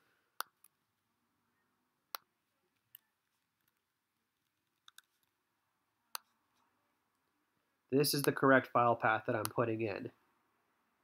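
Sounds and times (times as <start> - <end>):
computer mouse clicking: 4.4 - 5.4.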